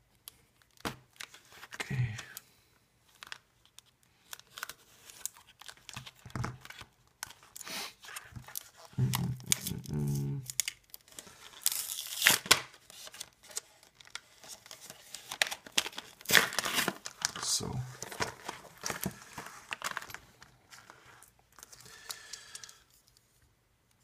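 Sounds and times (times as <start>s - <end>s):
plastic packaging tearing and crinkling: 3.1s - 21.8s.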